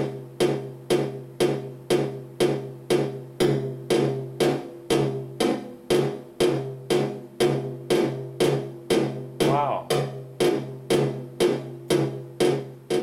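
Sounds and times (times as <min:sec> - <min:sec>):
bongo pattern: 0:00.0 - 0:13.0.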